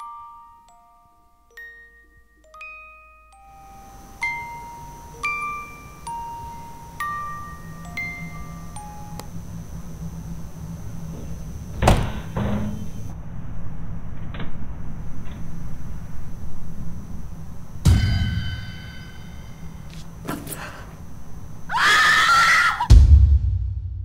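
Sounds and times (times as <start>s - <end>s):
chime-like notes: 0.0s - 9.2s
low steady drone: 3.3s - 21.7s
heavy thud: 11.7s - 12.8s
loud bang: 17.8s - 19.7s, 22.9s - 24.0s
metallic clang ringing: 17.9s - 20.6s.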